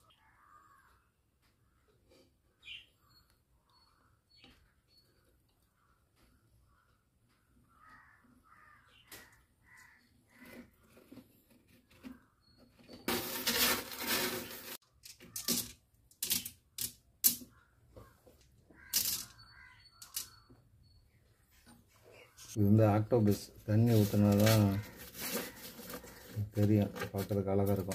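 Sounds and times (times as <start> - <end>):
pebbles grinding crunch: 13.1 - 14.8
pebbles clicking together: 20.0 - 20.3.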